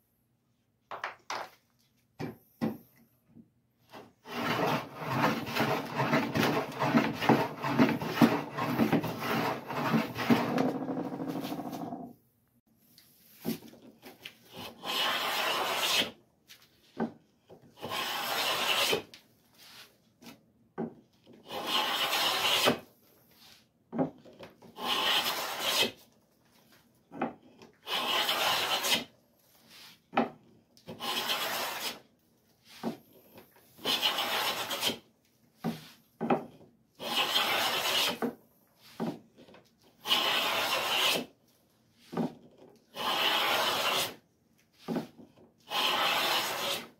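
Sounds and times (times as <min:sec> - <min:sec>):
hand plane cutting wood: 0:03.9 - 0:12.0, 0:14.5 - 0:16.2, 0:17.8 - 0:19.1, 0:21.4 - 0:22.9, 0:24.7 - 0:26.0, 0:27.2 - 0:29.1, 0:30.8 - 0:32.0, 0:33.7 - 0:35.0, 0:35.6 - 0:41.3, 0:42.0 - 0:44.2, 0:44.8 - 0:46.9.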